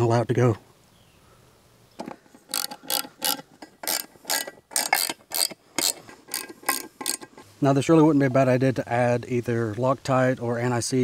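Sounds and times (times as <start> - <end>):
hand ratchet clicking: 2.0 - 7.4.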